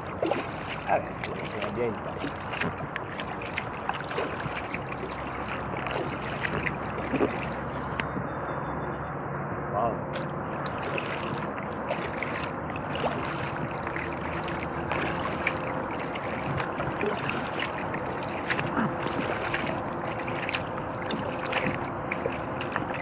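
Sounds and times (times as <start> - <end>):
paddle water splashing: 0.0 - 8.2, 10.1 - 23.0.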